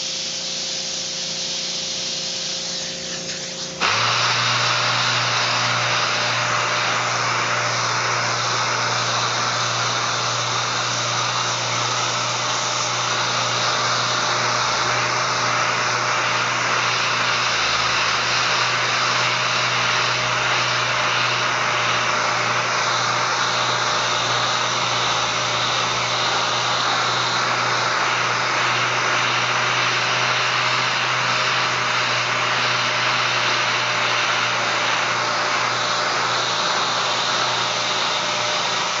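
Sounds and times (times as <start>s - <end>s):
air sander running: 0.0s - 39.0s.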